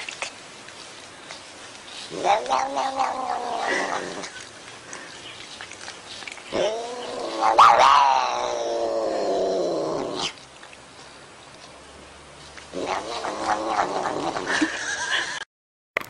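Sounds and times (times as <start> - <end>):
cat yowling: 6.5 - 9.6.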